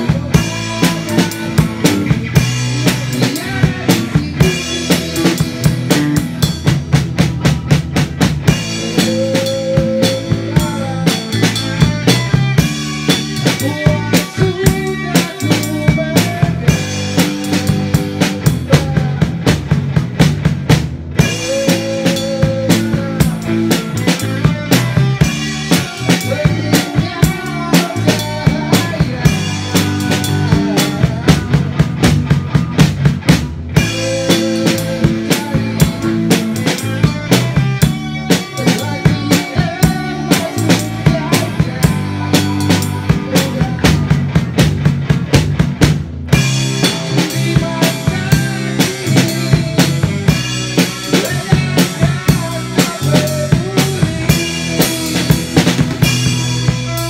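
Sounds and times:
man singing through microphone: 0:00.0 - 0:05.5, 0:08.8 - 0:12.6, 0:13.4 - 0:19.4, 0:21.2 - 0:31.7, 0:38.2 - 0:44.1, 0:47.0 - 0:55.6
drum kit beat: 0:00.0 - 0:57.0
electric guitars through amplifiers: 0:00.0 - 0:57.0.

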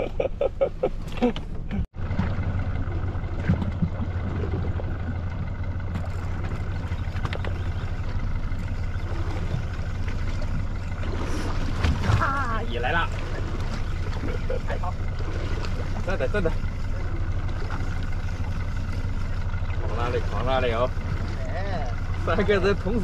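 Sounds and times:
boat engine droning: 0:00.0 - 0:23.0
voices: 0:10.6 - 0:23.0.

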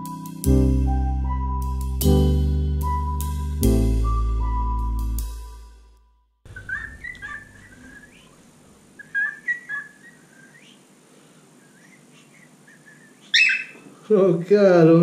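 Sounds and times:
recorded music: 0:00.0 - 0:06.0
cockatiel whistling: 0:06.5 - 0:08.4, 0:09.0 - 0:10.8, 0:11.6 - 0:13.8.

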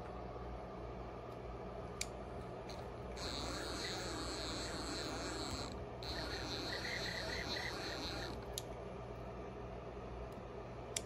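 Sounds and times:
stepper motor whine: 0:02.7 - 0:08.4.

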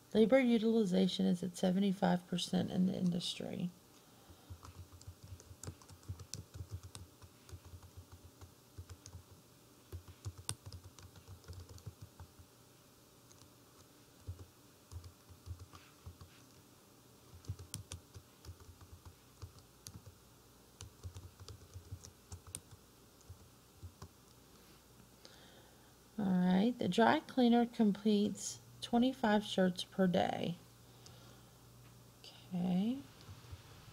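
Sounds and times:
keyboard typing: 0:04.4 - 0:12.4, 0:13.3 - 0:16.6, 0:17.3 - 0:20.2, 0:20.8 - 0:24.1.

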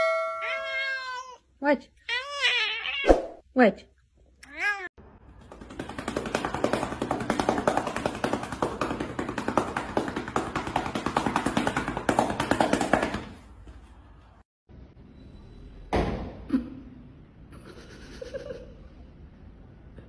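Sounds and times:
cat meow: 0:00.0 - 0:01.4, 0:04.4 - 0:04.9
hand patting cat: 0:05.4 - 0:13.4.

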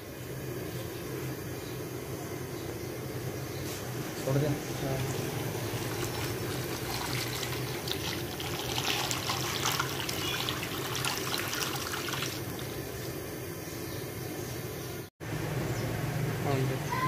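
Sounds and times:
steady low hum: 0:00.0 - 0:17.0
liquid pouring and splashing: 0:04.9 - 0:12.8.

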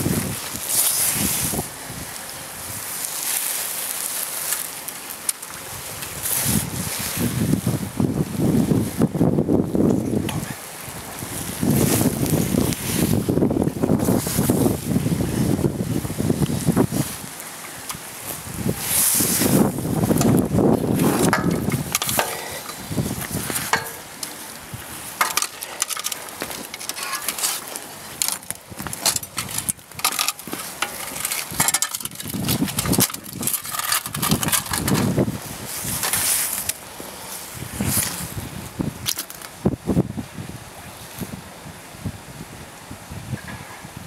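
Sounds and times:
wind gusts on microphone: 0:00.0 - 0:04.2, 0:05.5 - 0:44.0
sheet metal scraping and clattering: 0:21.0 - 0:22.8, 0:23.6 - 0:24.1, 0:25.2 - 0:35.1.

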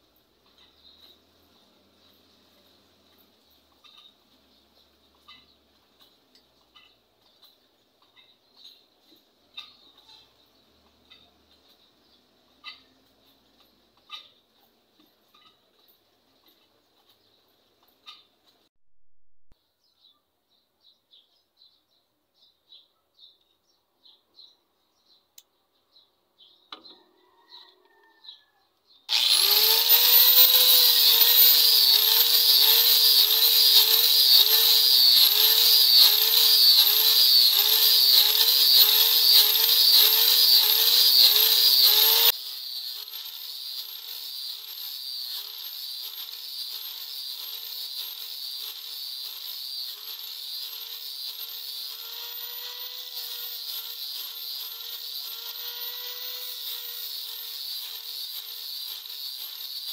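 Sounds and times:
angle grinder sanding wood: 0:29.1 - 0:59.9.

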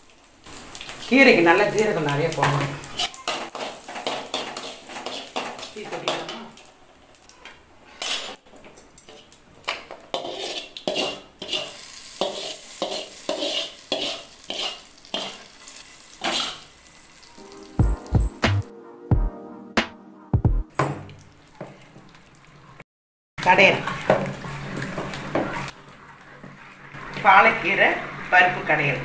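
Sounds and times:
seeds sizzling and crackling in oil: 0:00.0 - 0:08.4, 0:09.1 - 0:17.8
metal ladle scraping and knocking pan: 0:03.0 - 0:06.4, 0:09.1 - 0:15.4
music with low beat: 0:17.4 - 0:21.1.

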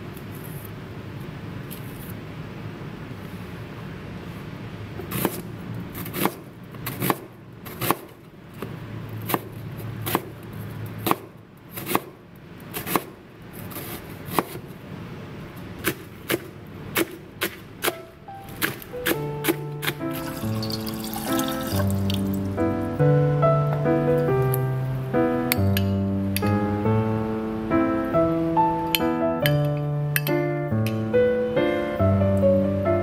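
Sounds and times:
knife chopping stalks: 0:05.1 - 0:05.4, 0:06.0 - 0:08.1, 0:09.3 - 0:10.3, 0:11.0 - 0:13.1, 0:13.7 - 0:14.6, 0:15.8 - 0:20.0
knife slicing onion on board: 0:05.1 - 0:10.4, 0:11.0 - 0:14.7, 0:15.8 - 0:20.0.

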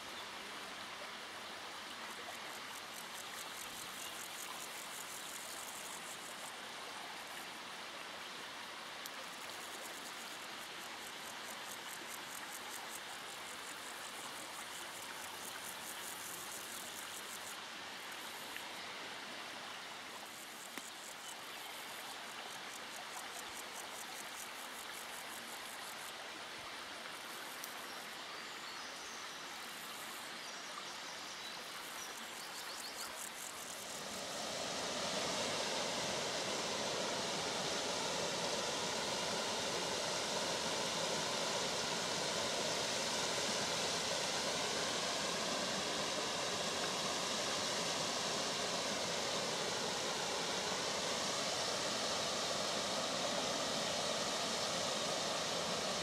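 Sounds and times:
forest brook trickling: 0:00.0 - 0:56.0
water rushing over cascades: 0:33.3 - 0:56.0.

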